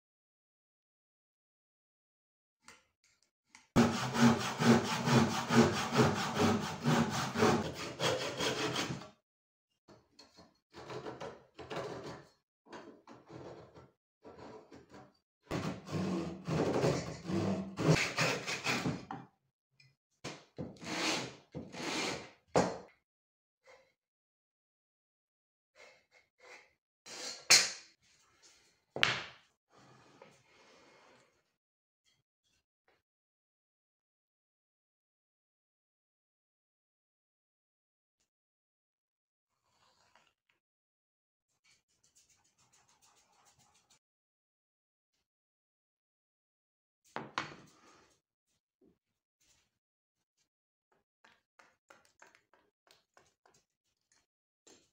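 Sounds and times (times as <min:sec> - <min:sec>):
hand saw cutting wood: 0:03.8 - 0:09.2, 0:15.5 - 0:19.1, 0:20.7 - 0:22.4
wooden block scraping on board: 0:15.5 - 0:19.1, 0:20.8 - 0:22.3.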